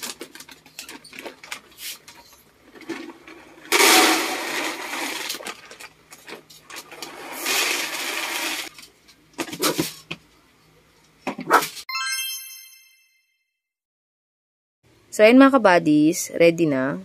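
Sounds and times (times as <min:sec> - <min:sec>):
kibble pouring into plastic container: 0:03.6 - 0:05.8, 0:06.9 - 0:08.7.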